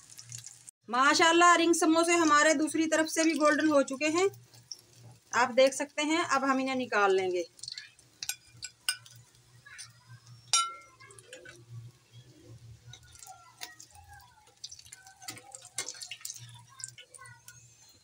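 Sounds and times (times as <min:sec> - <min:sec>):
samosas deep-frying in hot oil: 0:00.0 - 0:18.0
metal tongs clicking against pan: 0:07.5 - 0:11.7, 0:12.9 - 0:17.6.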